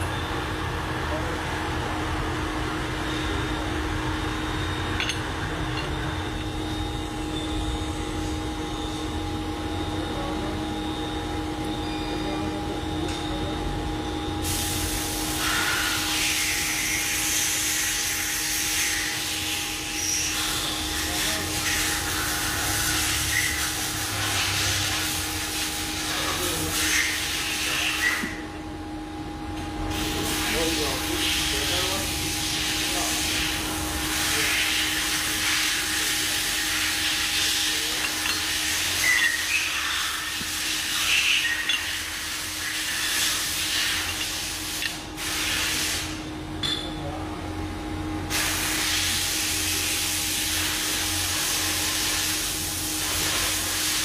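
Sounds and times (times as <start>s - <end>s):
milling machine electric hum: 0.0s - 54.0s.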